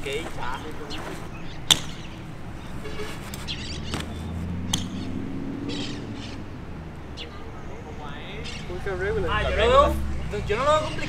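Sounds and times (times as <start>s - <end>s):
bike landing clack on concrete: 0.0s - 2.4s, 3.0s - 5.1s
bike knocks rolling: 0.0s - 5.2s.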